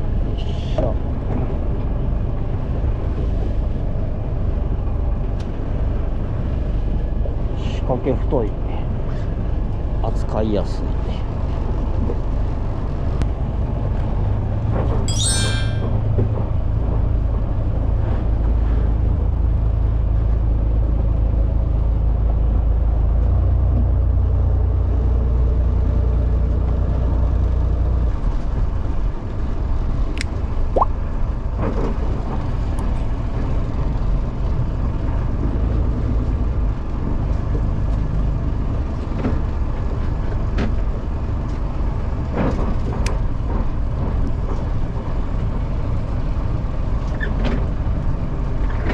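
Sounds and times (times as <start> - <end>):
boat engine rumbling: 15.8 - 48.9.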